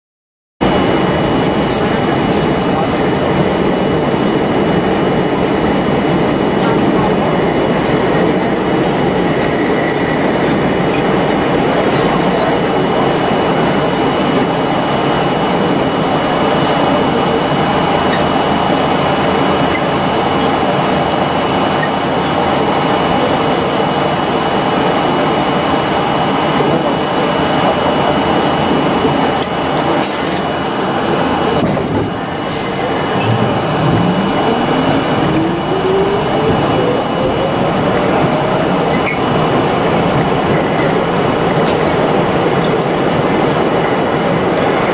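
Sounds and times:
subway train rumble and hiss: 0.6 - 44.9
train moving on next track: 0.6 - 44.9
traction motors whining: 29.3 - 44.9.

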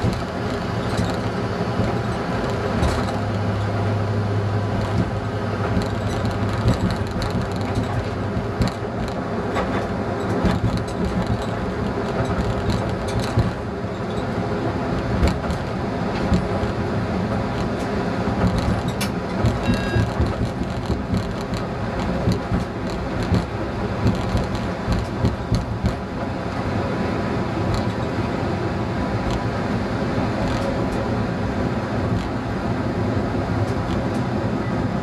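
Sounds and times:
wheels knocking on rail joints: 0.0 - 3.9, 4.6 - 14.2, 15.0 - 16.7, 17.5 - 26.4
diesel engine hum: 0.0 - 35.0
wheels rumbling on rails: 0.0 - 35.0
brief high beep: 19.6 - 20.1.

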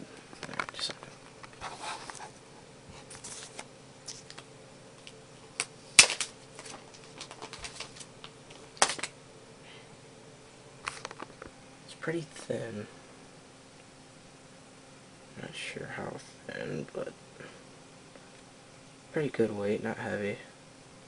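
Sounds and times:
plastic packaging crinkling: 3.1 - 9.2.

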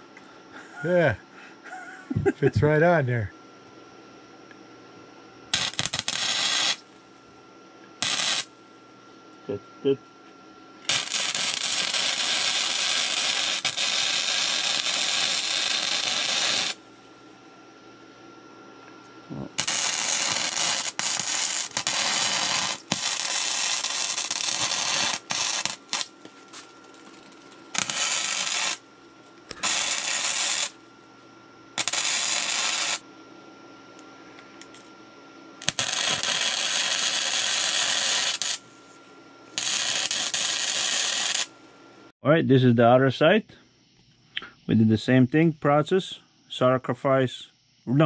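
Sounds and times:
air tool hissing: 5.6 - 6.8, 8.0 - 8.5, 10.9 - 16.8, 19.4 - 26.7, 27.7 - 28.8, 29.5 - 30.8, 31.8 - 33.0, 35.6 - 38.6, 39.5 - 41.5.

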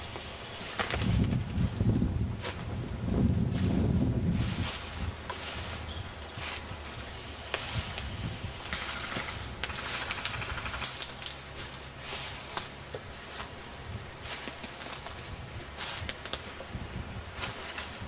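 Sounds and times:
footsteps through undergrowth: 0.0 - 18.0
leaves and brush rustling: 0.0 - 18.0
twigs snapping: 0.5 - 2.6, 5.2 - 5.6, 7.5 - 13.6, 14.2 - 18.0.

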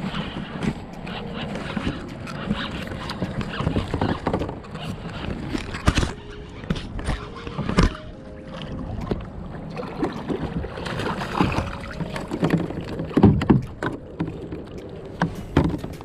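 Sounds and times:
paddle splashes: 0.0 - 16.0
paddle knocking on kayak: 10.0 - 14.6.

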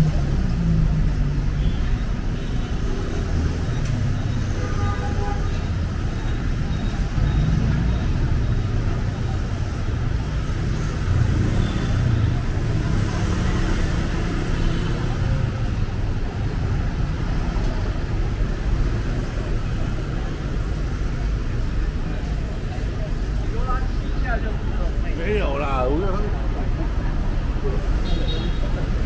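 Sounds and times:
cars and motorbikes passing on wet road: 6.6 - 23.5.

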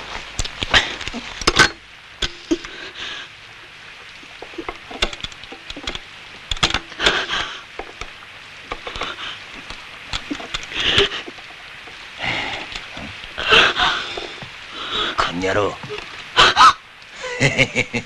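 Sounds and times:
objects knocking and clattering: 0.4 - 2.7, 4.2 - 13.4, 14.0 - 14.6.

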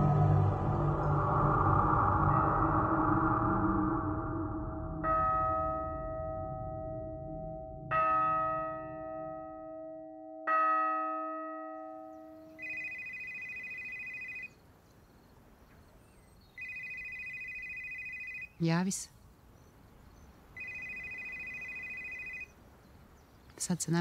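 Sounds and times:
phone ringing electronic trill: 12.6 - 14.5, 16.6 - 18.5, 20.6 - 22.5.

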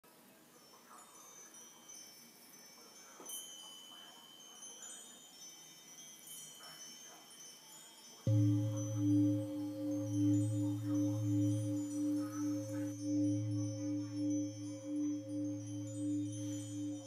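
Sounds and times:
chimes ringing softly: 0.2 - 17.0
loud deep steady tone: 8.3 - 17.0.

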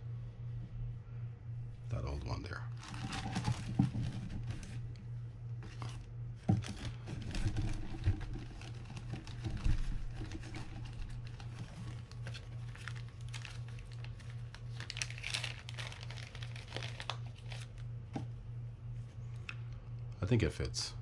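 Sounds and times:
low hum: 0.0 - 21.0
plastic bag crinkling: 2.7 - 4.9, 6.6 - 17.8.

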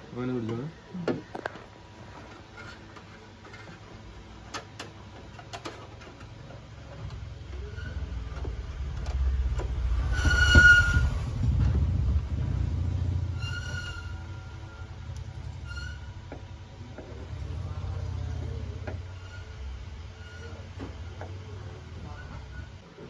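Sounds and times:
engine rumble: 6.2 - 22.8.

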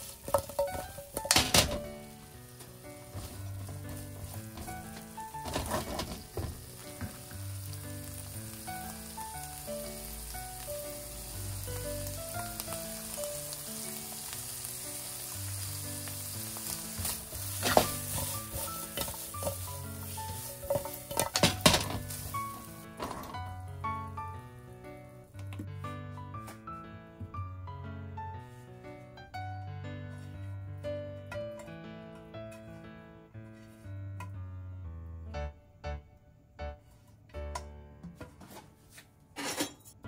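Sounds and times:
spatula scraping a pan: 0.0 - 1.8, 3.0 - 6.8, 16.6 - 22.7
food sizzling in a frying pan: 0.0 - 24.1
background music: 0.0 - 39.4.

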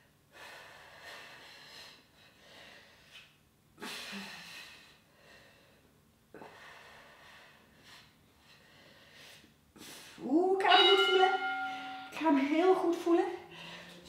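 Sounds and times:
woman breathing hard: 0.3 - 10.2.

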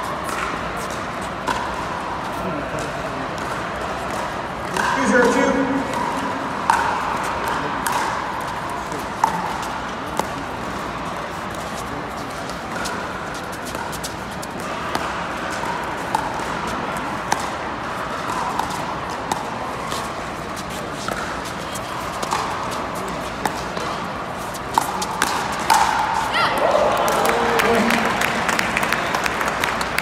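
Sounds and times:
crowd murmur: 0.0 - 30.0.

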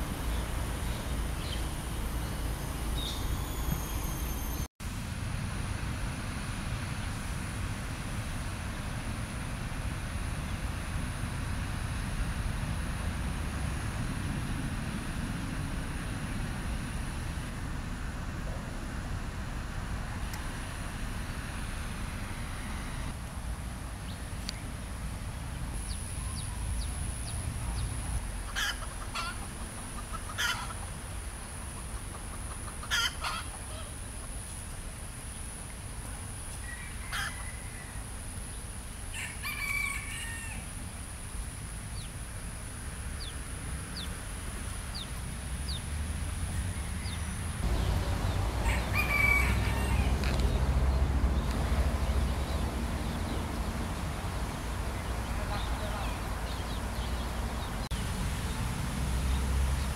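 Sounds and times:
roosters crowing: 28.5 - 30.9, 31.6 - 34.0, 36.5 - 38.3, 39.0 - 40.8, 46.7 - 57.8.

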